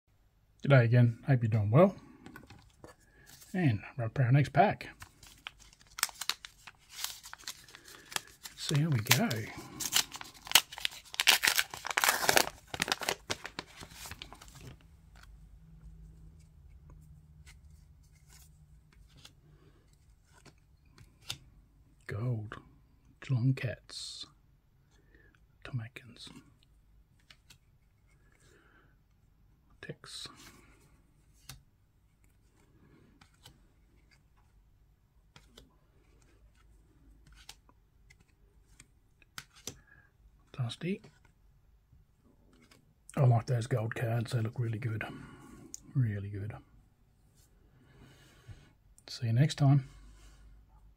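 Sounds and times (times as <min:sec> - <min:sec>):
wrapper tearing and crinkling: 0:05.2 - 0:14.5
faint clicks of cards: 0:32.2 - 0:34.5, 0:35.3 - 0:40.0.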